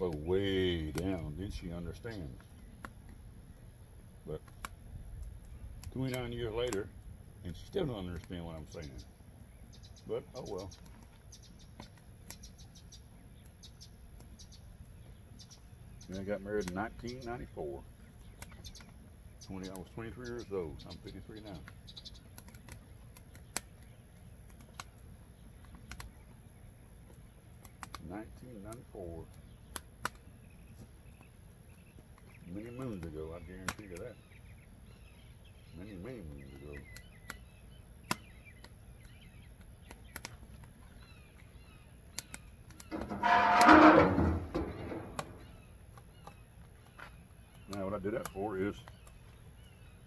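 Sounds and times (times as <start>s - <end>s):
logs crackling and popping: 0.0s - 50.0s
metal lid scraping and clattering shut: 42.9s - 45.4s.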